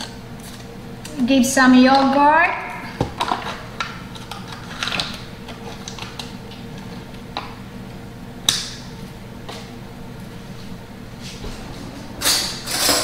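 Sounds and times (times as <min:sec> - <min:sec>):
low hum: 0:06.8 - 0:13.0.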